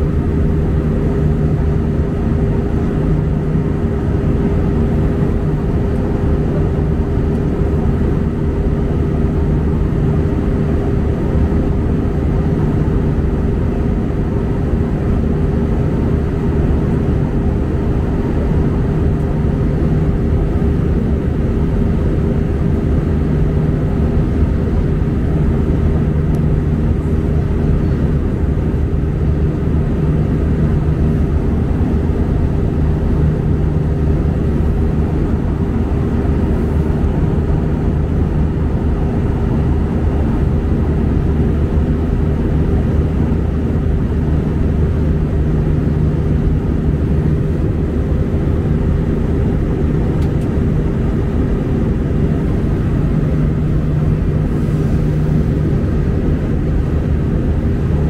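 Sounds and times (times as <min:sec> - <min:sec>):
jet engine drone: 0:00.0 - 0:58.0
low hum: 0:14.8 - 0:58.0
rushing air: 0:53.2 - 0:56.4.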